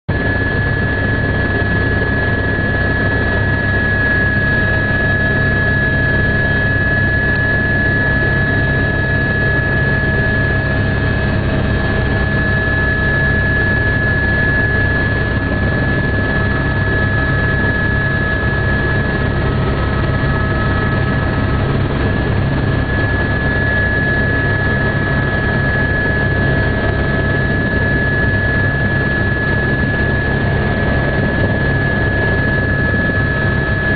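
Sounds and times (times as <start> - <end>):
helicopter engine and rotor rumble: 0.1 - 33.9
high whine: 0.1 - 33.9.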